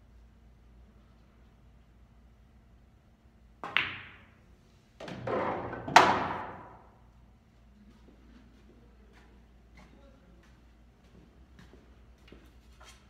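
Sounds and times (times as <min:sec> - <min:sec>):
billiard balls rattling: 0:05.0 - 0:06.8.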